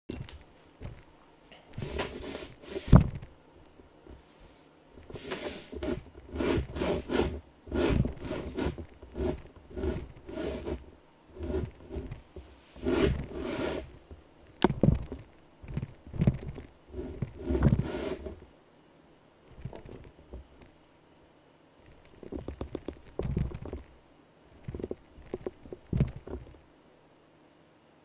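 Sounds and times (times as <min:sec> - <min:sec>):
camera handling rubbing and scraping: 0:05.0 - 0:14.0, 0:14.6 - 0:18.4.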